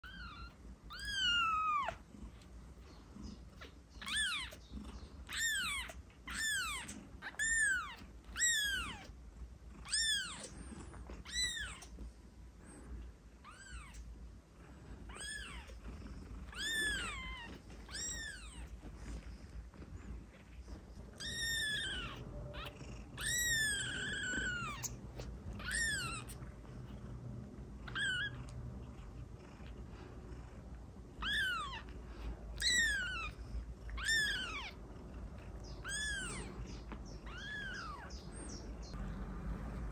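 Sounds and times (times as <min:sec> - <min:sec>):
kitten mewing: 0:16.4 - 0:18.7, 0:21.2 - 0:26.4, 0:27.8 - 0:28.4.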